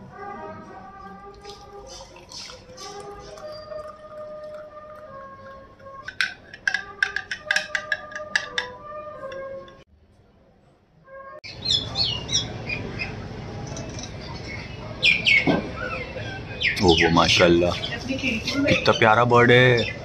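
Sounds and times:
spoon clinking in glass: 0:02.1 - 0:05.1, 0:05.9 - 0:09.8
steady background hum: 0:11.5 - 0:20.0.

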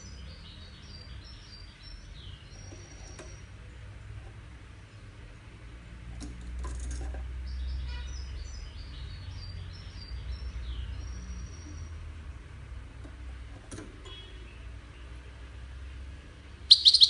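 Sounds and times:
finch twittering song: 0:00.0 - 0:03.5, 0:07.4 - 0:12.0, 0:16.6 - 0:17.0.

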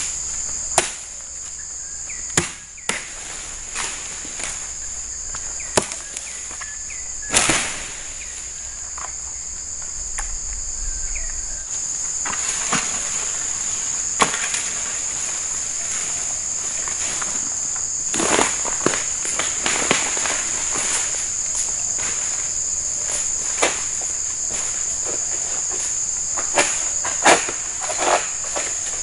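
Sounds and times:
insects droning: 0:00.0 - 0:29.0
rustle of leaves: 0:00.0 - 0:29.0
machete chopping: 0:00.8 - 0:01.1, 0:02.3 - 0:03.2, 0:05.7 - 0:06.1, 0:07.3 - 0:07.9, 0:14.2 - 0:14.8, 0:26.4 - 0:28.8.

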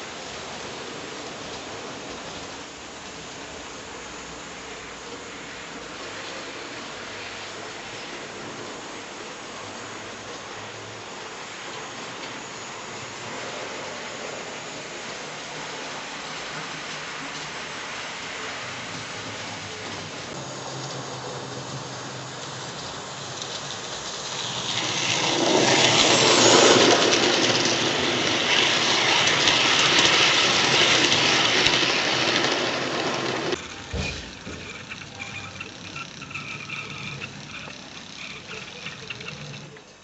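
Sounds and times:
model train running on track: 0:00.0 - 0:40.0
thin high whine: 0:33.4 - 0:39.8.

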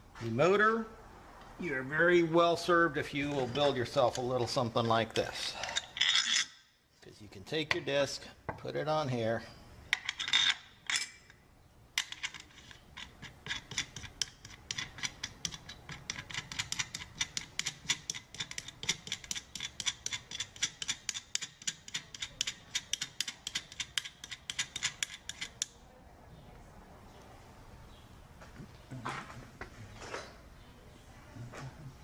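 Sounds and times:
ratchet clicking: 0:12.0 - 0:25.7.

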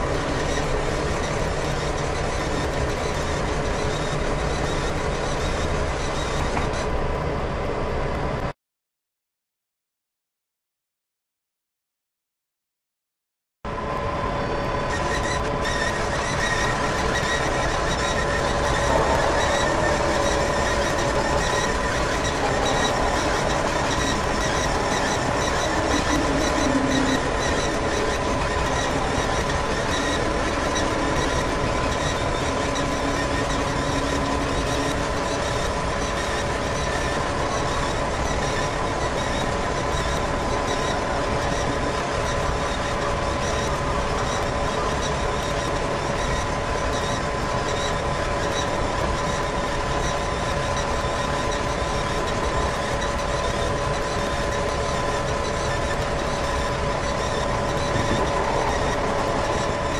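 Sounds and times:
robot drive motors whining: 0:14.9 - 0:59.9.

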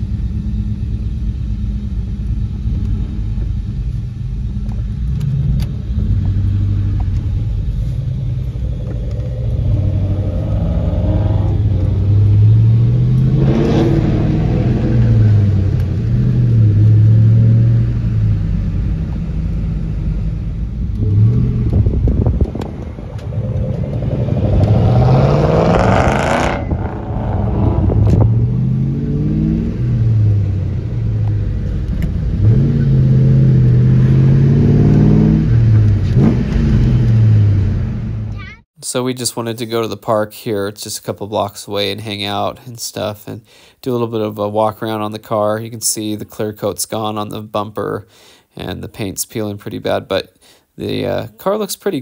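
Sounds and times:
car engine accelerating through gears: 0:04.5 - 0:38.4.

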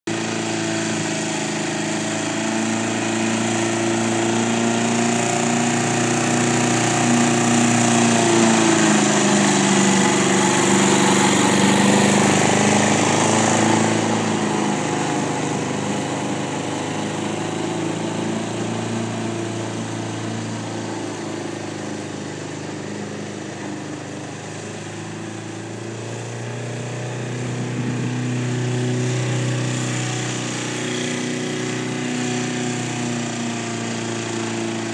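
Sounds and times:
radio-controlled lawn mower running: 0:00.1 - 0:34.9.

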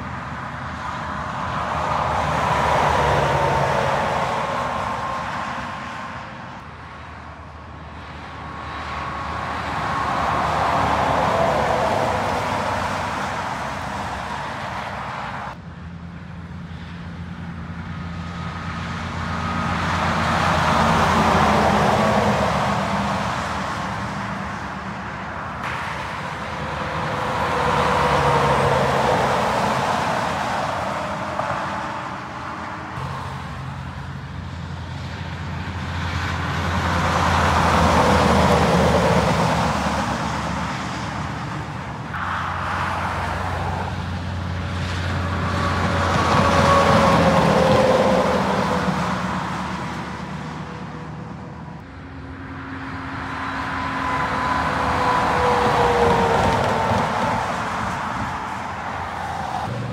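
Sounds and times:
heavy trucks passing: 0:00.0 - 0:59.9.

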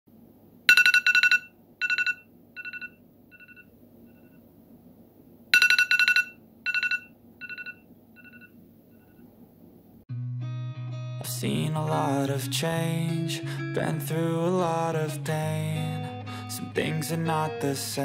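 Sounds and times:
electronic alarm trilling beep: 0:00.7 - 0:04.4, 0:05.6 - 0:09.2.

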